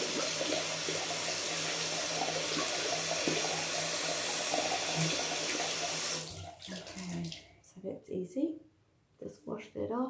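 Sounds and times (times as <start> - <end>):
tap running into sink: 2.1 - 7.1.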